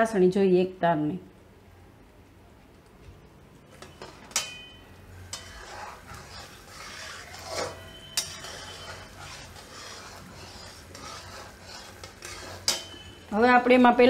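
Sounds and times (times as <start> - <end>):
spatula clinking against pan: 3.8 - 5.7, 7.4 - 9.1, 12.0 - 13.3
spatula scraping metal pan: 3.8 - 13.3.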